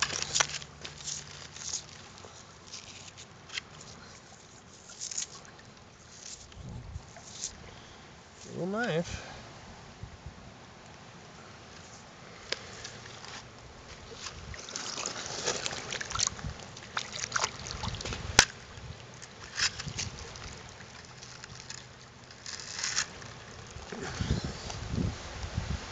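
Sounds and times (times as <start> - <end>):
crunches on wet gravel: 0.0 - 6.6, 12.3 - 24.8
creek water trickling: 0.0 - 9.0, 10.8 - 25.8.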